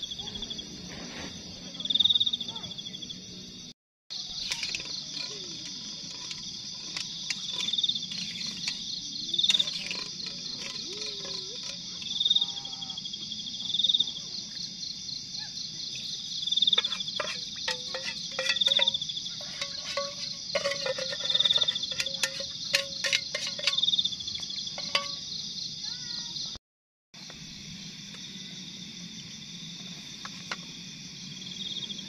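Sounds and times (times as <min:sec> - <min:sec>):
insects trilling: 0:00.0 - 0:26.6, 0:27.2 - 0:32.0
spoon scraping metal pot: 0:04.2 - 0:12.5, 0:16.6 - 0:25.4
insect pulsing call: 0:04.2 - 0:26.5.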